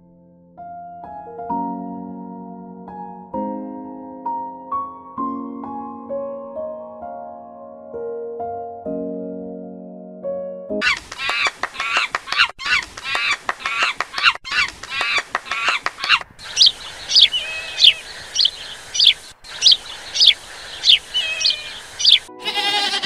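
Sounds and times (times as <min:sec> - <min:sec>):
bird short sharp calls: 0:10.8 - 0:23.0
monkeys chattering: 0:10.8 - 0:23.0.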